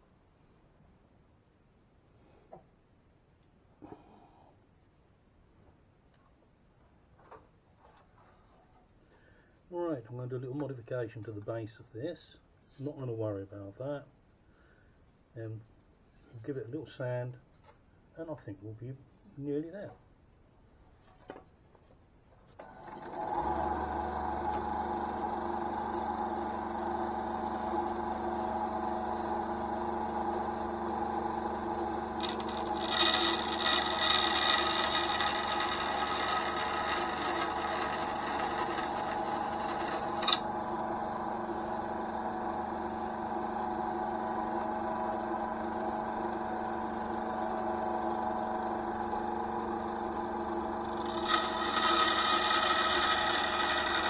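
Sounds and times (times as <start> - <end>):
bandsaw cutting wood: 23.0 - 54.0
bandsaw running: 23.0 - 54.0.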